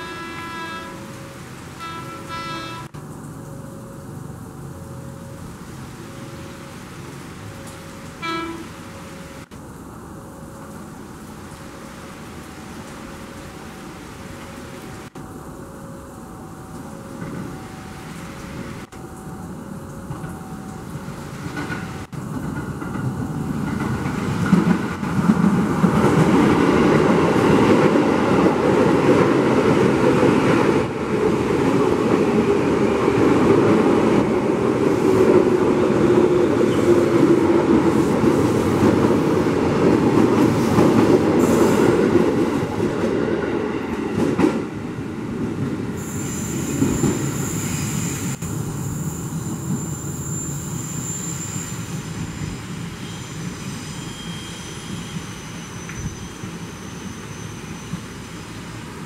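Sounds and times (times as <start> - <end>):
train passing on rails: 0.0 - 59.0
heavy rain: 4.0 - 22.6
faint falling squeal: 46.0 - 58.5.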